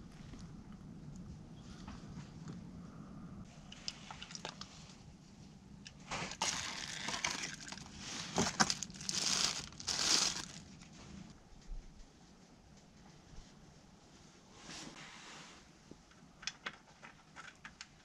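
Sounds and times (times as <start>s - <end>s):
plastic wrapping crinkling: 6.1s - 11.3s.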